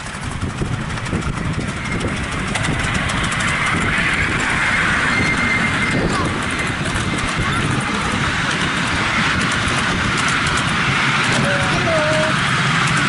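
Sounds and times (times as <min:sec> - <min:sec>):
steam hissing: 0:00.0 - 0:13.0
train wheels rumbling on track: 0:00.0 - 0:13.0.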